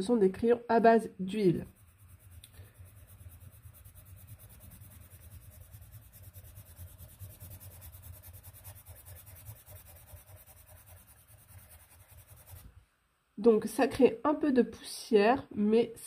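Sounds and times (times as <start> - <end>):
low steady hum: 0.0 - 16.0
pencil scratching on paper: 1.4 - 12.7.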